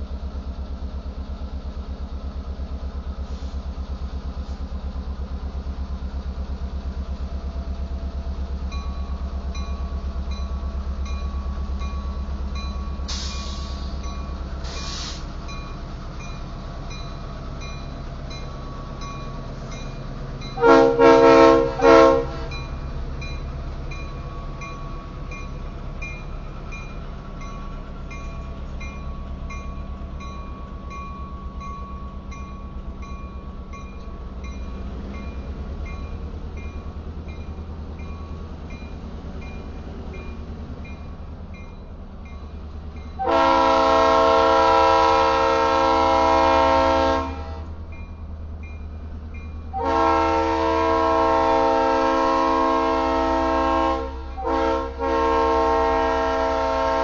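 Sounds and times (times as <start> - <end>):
locomotive engine running: 0.0 - 57.0
short hisses: 13.1 - 14.0, 14.6 - 15.3
short air horn blasts: 20.6 - 22.5, 43.2 - 47.6, 49.8 - 57.0.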